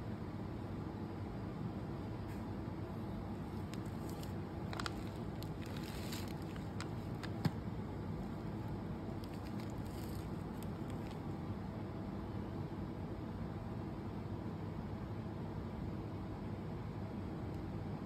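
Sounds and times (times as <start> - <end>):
low background rumble: 2.8 - 11.8
plastic cup clicks and crackles: 3.6 - 7.6, 8.2 - 11.2.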